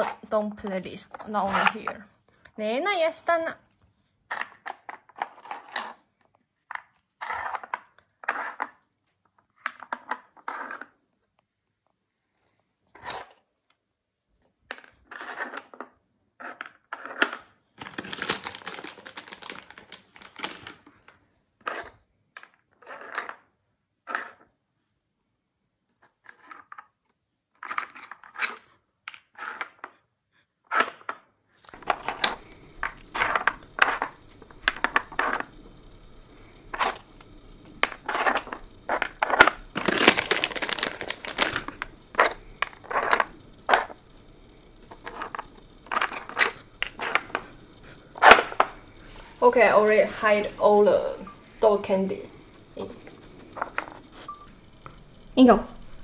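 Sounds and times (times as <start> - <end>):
plastic puzzle pieces clacking: 4.3 - 6.0, 9.6 - 10.9, 14.7 - 21.8, 30.7 - 35.5, 36.7 - 44.0, 44.8 - 47.5
rustling: 17.8 - 21.0, 31.6 - 50.8.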